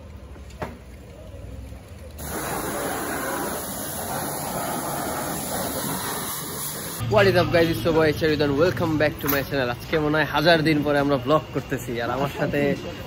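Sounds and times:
loud steady hiss: 2.2s - 7.0s.

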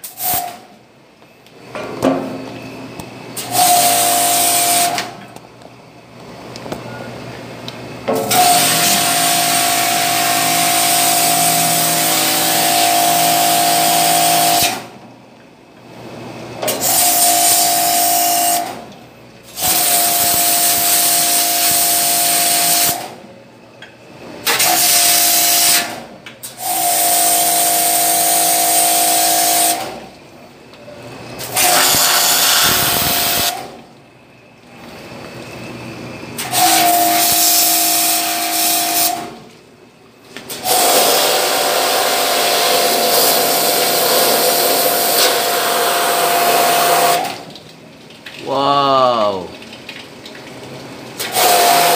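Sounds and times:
pump whining: 2.4s - 5.4s, 6.0s - 15.0s, 30.6s - 33.8s, 34.6s - 39.4s
pressure washer jet hissing: 8.3s - 14.8s, 31.6s - 33.6s.

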